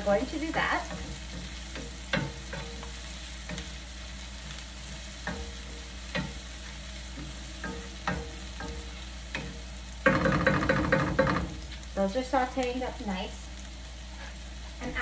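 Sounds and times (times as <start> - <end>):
food sizzling in pot: 0.0 - 15.0
utensil knocking against pot: 9.4 - 11.6.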